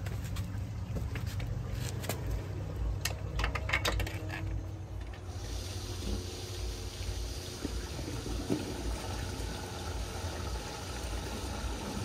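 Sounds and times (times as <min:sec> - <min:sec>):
clicks and knocks: 0:03.0 - 0:05.2
water running: 0:05.1 - 0:12.0.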